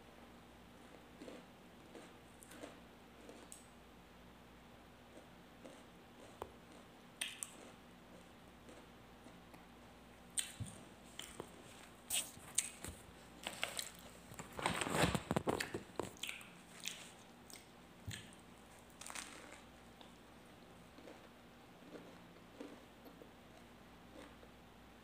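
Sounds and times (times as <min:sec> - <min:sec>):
person chewing bread: 0:00.8 - 0:03.6, 0:05.1 - 0:09.7, 0:10.4 - 0:24.5
mouth clicks and smacks: 0:07.2 - 0:07.7, 0:15.6 - 0:18.4
rustling handling noise: 0:11.1 - 0:16.2.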